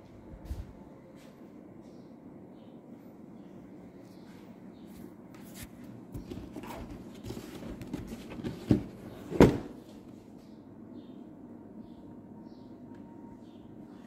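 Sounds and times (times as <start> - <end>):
cardboard box scraping and rustling: 6.2 - 9.3.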